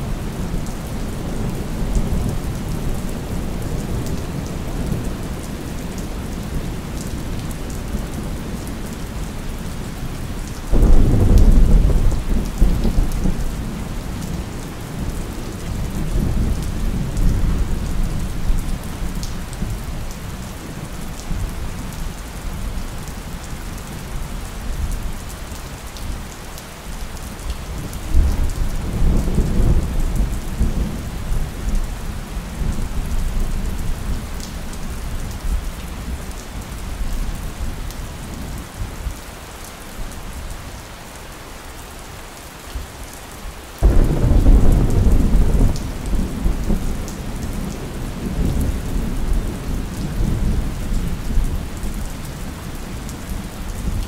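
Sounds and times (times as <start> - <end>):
steady rain falling: 0.0 - 54.0
thunder: 43.8 - 47.7.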